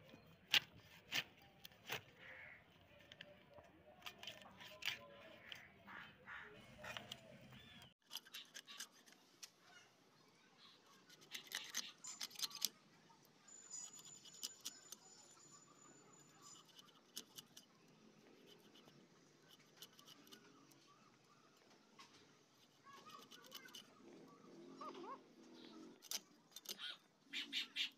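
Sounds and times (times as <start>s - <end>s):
fish scales scraping on blade: 11.0s - 12.7s.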